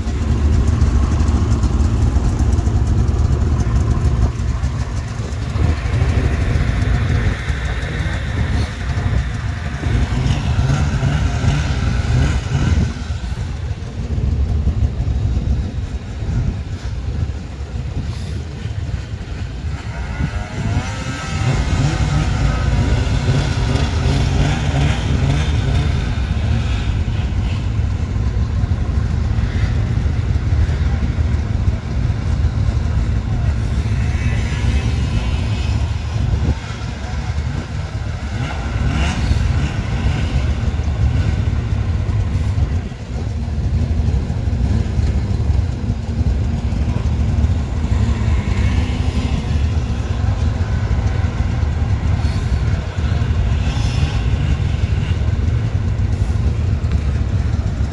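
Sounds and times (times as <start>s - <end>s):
snowmobile engines idling: 0.0s - 57.9s
engine revving up: 4.7s - 13.5s, 19.7s - 27.7s, 33.6s - 42.6s.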